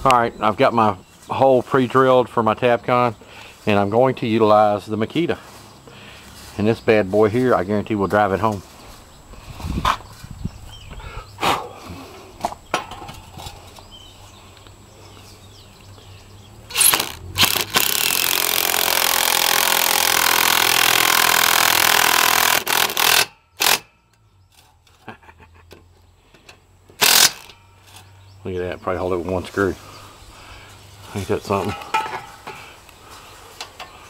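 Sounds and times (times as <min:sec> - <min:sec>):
impact driver driving screw: 0:16.7 - 0:23.9, 0:27.0 - 0:27.6.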